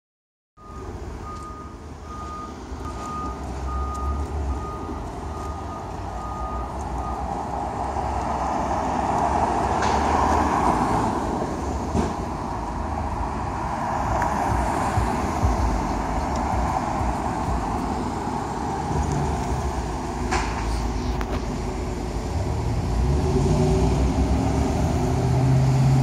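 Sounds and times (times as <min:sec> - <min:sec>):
truck backup alarm beeping: 0:00.6 - 0:07.6
diesel engine: 0:00.6 - 0:26.0
street traffic: 0:00.6 - 0:26.0.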